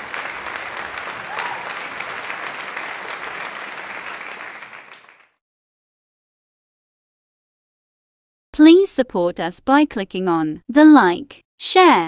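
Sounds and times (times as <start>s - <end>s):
crowd applauding: 0.0s - 5.4s.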